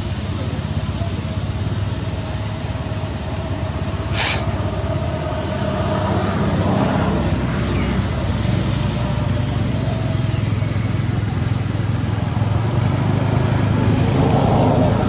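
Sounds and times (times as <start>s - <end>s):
pulsing engine rumble: 0.0s - 15.0s
brief loud hiss: 4.1s - 4.5s.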